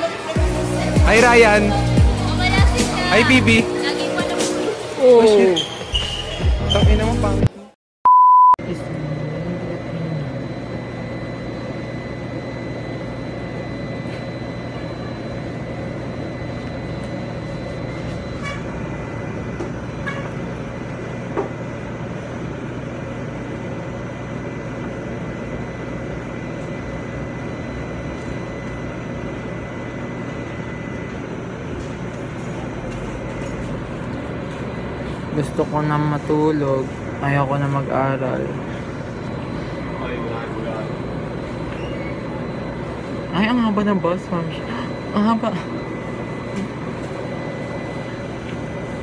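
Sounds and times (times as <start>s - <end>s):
high whine: 0.0s - 7.7s, 8.4s - 49.0s
vehicle engine drone: 8.6s - 23.4s.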